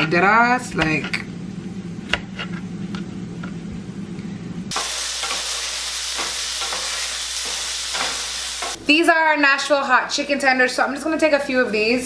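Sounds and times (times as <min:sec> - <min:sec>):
chickpeas sizzling in oil: 0:04.7 - 0:08.8.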